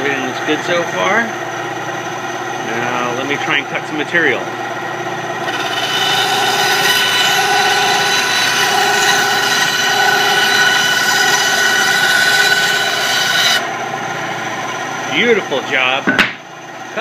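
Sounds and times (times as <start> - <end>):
bandsaw cutting wood: 5.4 - 13.8.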